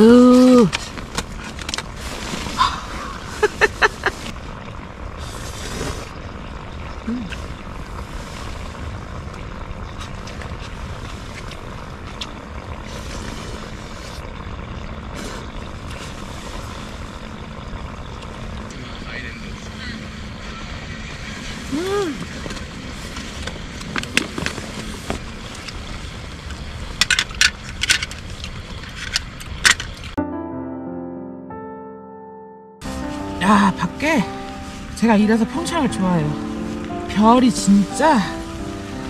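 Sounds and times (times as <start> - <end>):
noodle slurps: 5.2 - 6.2, 10.2 - 14.3, 15.1 - 16.8.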